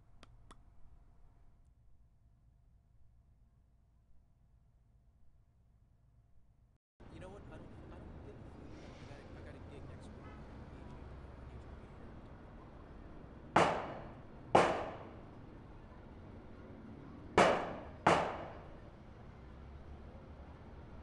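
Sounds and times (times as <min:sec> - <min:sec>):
gunshots with echo: 0:13.6 - 0:15.2, 0:17.4 - 0:18.8.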